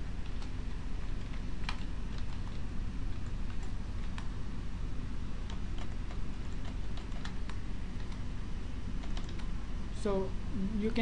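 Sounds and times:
steady low hum: 0.0s - 11.0s
keyboard keys clicking: 0.2s - 4.3s, 5.4s - 8.3s, 9.0s - 9.5s.

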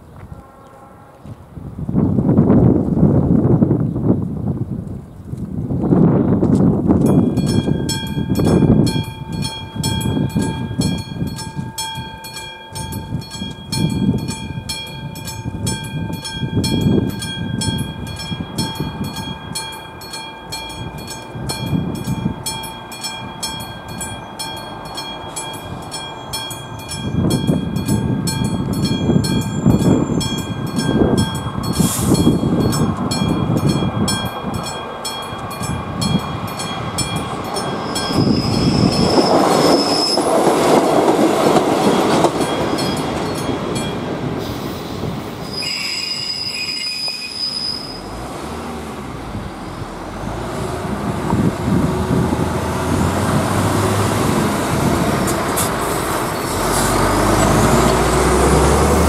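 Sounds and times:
wind buffeting microphone: 0.0s - 45.6s, 48.0s - 59.0s
electric warning bell ringing: 7.0s - 44.5s.

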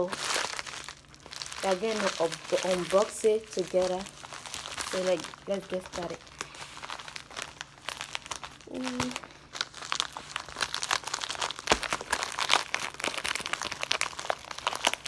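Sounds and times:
plastic mailer crinkling: 0.0s - 15.0s
person humming: 8.6s - 9.3s.

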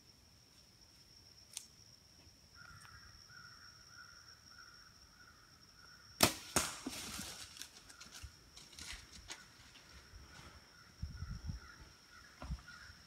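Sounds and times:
bow string release crack: 1.5s - 1.7s
arrow striking: 6.2s - 7.2s
deer crashing through brush: 6.2s - 9.4s.

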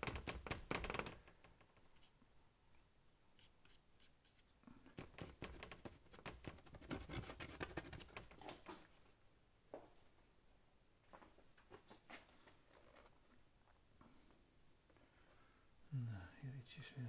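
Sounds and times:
paintbrush scratching on paper: 3.4s - 8.4s.

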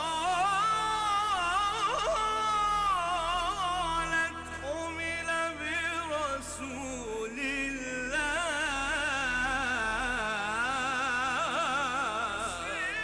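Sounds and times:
man singing devotional song: 0.0s - 13.0s.

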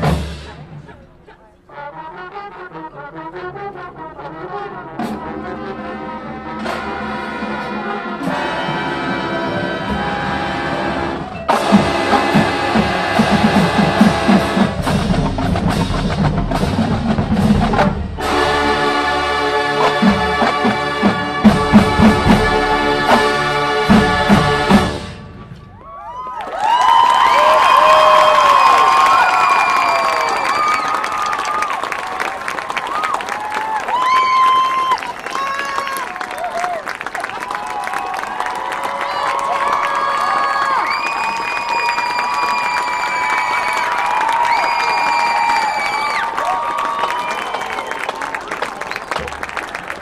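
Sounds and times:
marching band brass and drums: 0.0s - 26.2s.

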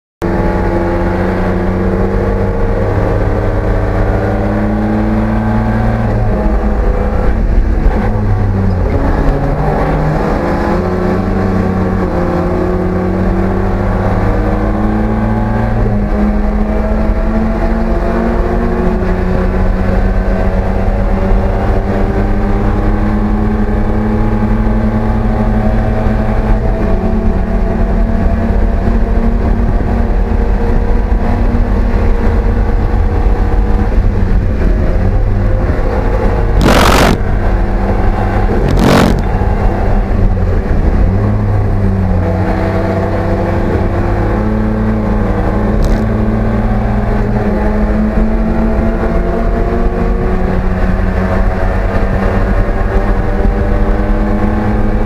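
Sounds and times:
race car engine: 0.2s - 55.0s
short loud noise bursts: 36.6s - 37.5s.

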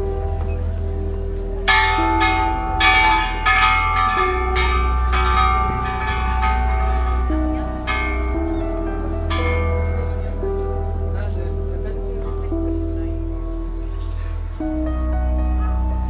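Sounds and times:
chiming bell melody: 0.0s - 12.3s
deep bass: 0.0s - 16.0s
held chords: 0.0s - 16.0s.

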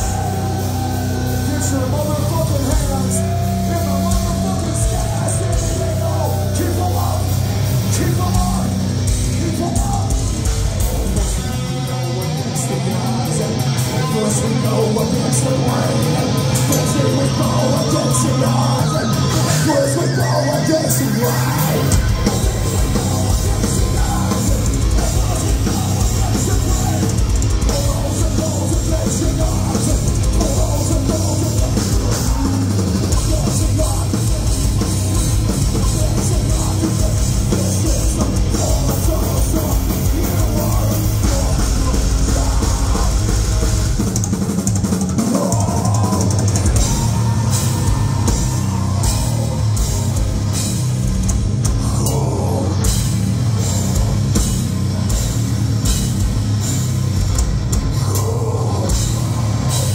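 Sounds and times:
bass guitar: 0.0s - 59.9s
distorted electric guitars: 0.0s - 59.9s
pounding drum kit: 0.0s - 59.9s.

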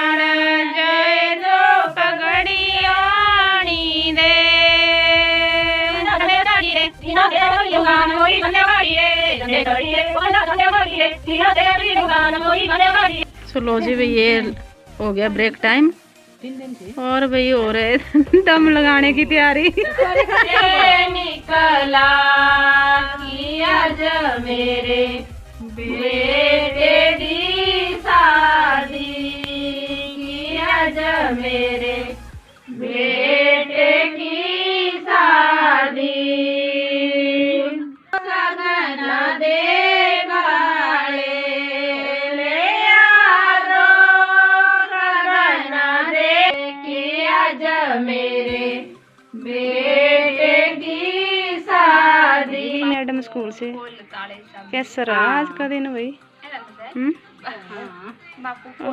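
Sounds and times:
woman singing slowly: 19.7s - 21.3s.

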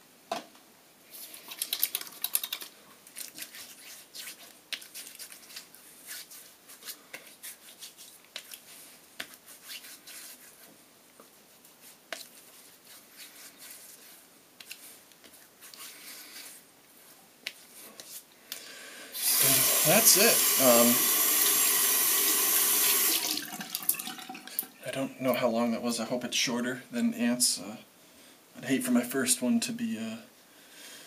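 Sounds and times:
hands slapping and rubbing face: 1.1s - 16.6s, 17.4s - 18.3s.

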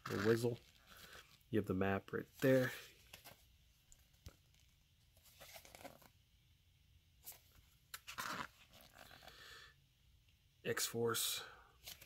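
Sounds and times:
paper pages rustling: 2.4s - 6.1s
page turning swish: 5.2s - 6.1s.

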